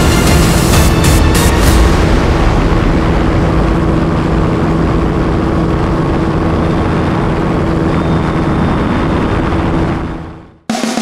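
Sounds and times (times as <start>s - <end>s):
helicopter engine and rotor: 3.7s - 10.6s.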